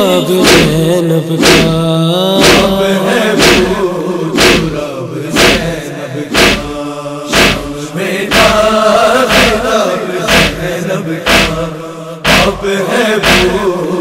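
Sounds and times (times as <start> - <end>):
men chanting a lament: 0.0 - 14.0
hands beating on chests: 0.4 - 0.8, 1.4 - 1.8, 2.4 - 2.8, 3.4 - 3.8, 4.4 - 4.8, 5.4 - 5.7, 6.4 - 6.7, 7.3 - 7.7, 8.3 - 8.6, 9.3 - 9.6, 10.3 - 10.6, 11.3 - 11.6, 12.3 - 12.6, 13.2 - 13.6.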